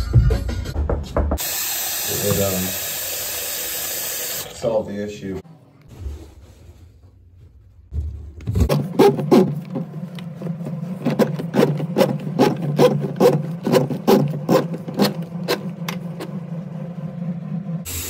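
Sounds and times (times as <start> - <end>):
drum and cable knocking: 0.2 - 1.4, 7.9 - 16.5
drain auger humming: 8.6 - 18.0.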